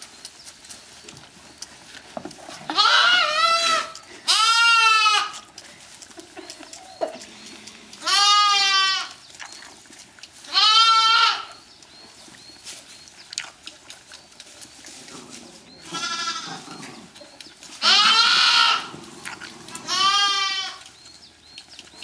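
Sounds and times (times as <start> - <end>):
rustling in straw: 0.0 - 6.8, 7.6 - 21.2
lambs bleating: 2.6 - 5.5, 7.9 - 9.2, 10.5 - 11.6, 15.8 - 16.9, 17.8 - 19.0, 19.6 - 20.9.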